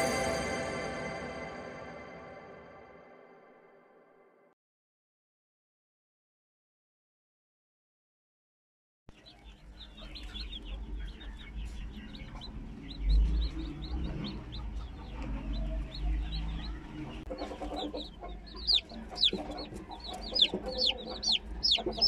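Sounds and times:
chicks peeping: 9.1 - 22.0
hen clucking low: 14.2 - 22.0.

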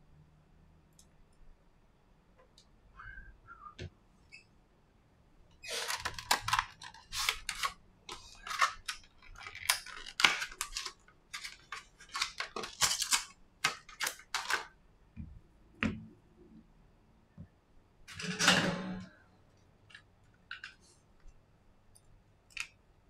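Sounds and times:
plastic packaging crinkling: 5.7 - 14.7.

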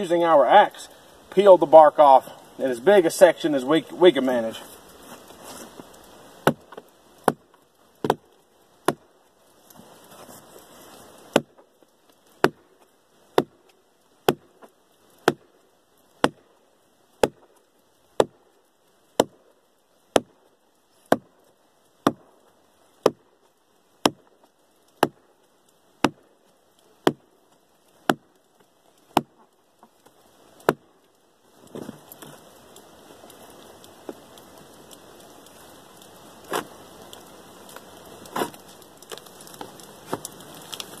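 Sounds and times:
axe chopping into log: 6.4 - 9.1, 11.3 - 11.6, 12.4 - 12.6, 13.4 - 13.6, 14.2 - 14.6, 15.2 - 15.5, 16.2 - 16.4, 17.2 - 17.5, 19.2 - 19.4, 20.1 - 20.4, 21.1 - 21.3, 22.0 - 22.3, 24.0 - 24.2, 25.0 - 25.2, 27.0 - 27.2, 29.1 - 29.4, 30.6 - 30.8.

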